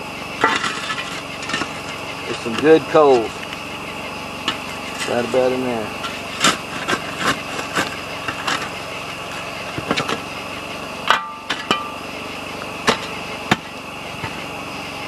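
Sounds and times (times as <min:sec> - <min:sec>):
metal clang: 0:00.4 - 0:01.9, 0:11.0 - 0:12.1, 0:12.8 - 0:13.7
shovel scraping rocks and coals: 0:00.4 - 0:03.5, 0:04.4 - 0:10.3, 0:11.0 - 0:12.0, 0:12.8 - 0:14.4.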